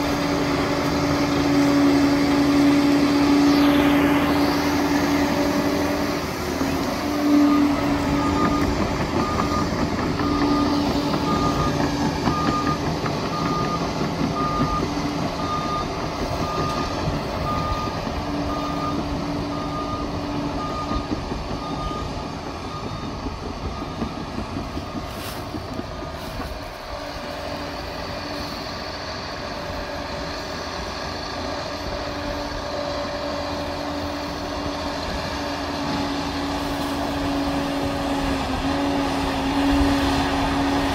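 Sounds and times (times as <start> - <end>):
reversing alarm beeping: 0.0 - 25.8
dozer diesel engine running: 0.0 - 40.9.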